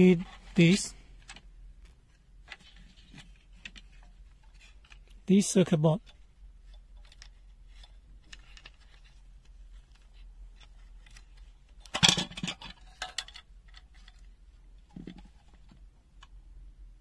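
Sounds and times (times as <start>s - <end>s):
plastic clicks and rattling: 6.0s - 16.4s
plastic clatter: 9.8s - 15.8s.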